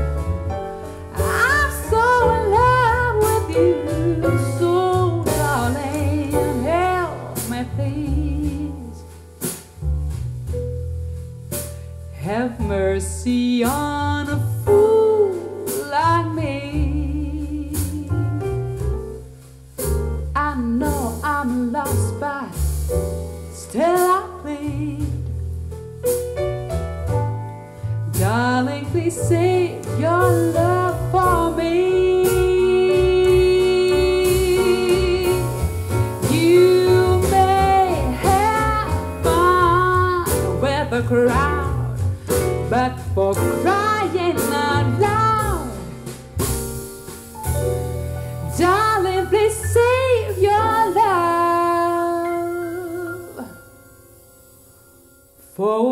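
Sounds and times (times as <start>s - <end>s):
song with singer over instruments: 28.2s - 46.4s, 48.5s - 55.9s.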